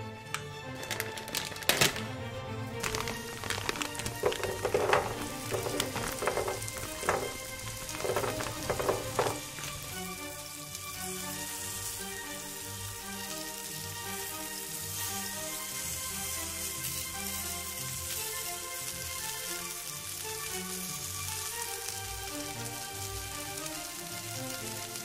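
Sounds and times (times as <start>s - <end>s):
rice cakes dropping into pan: 0.3s - 2.2s, 2.8s - 10.2s
chicken sizzling in a pan: 2.7s - 25.0s.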